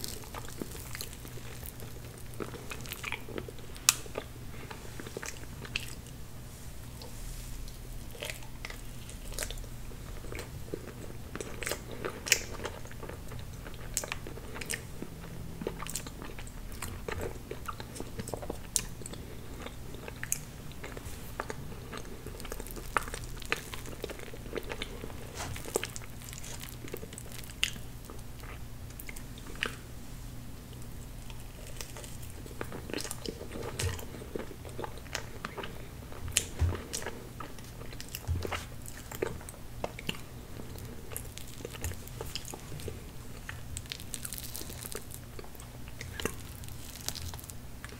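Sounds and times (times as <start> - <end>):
chewing and wet mouth sounds: 0.0 - 6.2, 6.9 - 29.9, 30.7 - 47.9
steady low hum: 0.0 - 47.9
small crunches: 20.0 - 29.8, 31.2 - 47.9.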